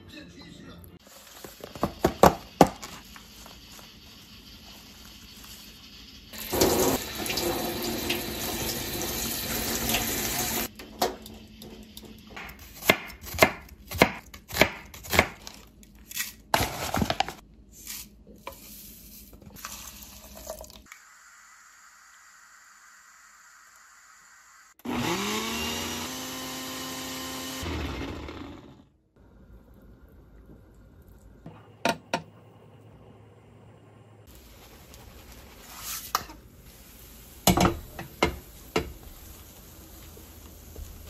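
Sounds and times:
plastic pack rustling: 16.6 - 17.4.

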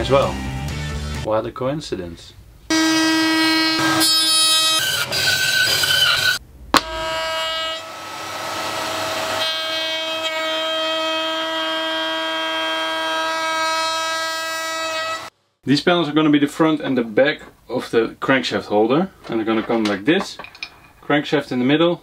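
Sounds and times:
router bit cutting wood: 2.7 - 15.3
router whining: 2.7 - 15.3.

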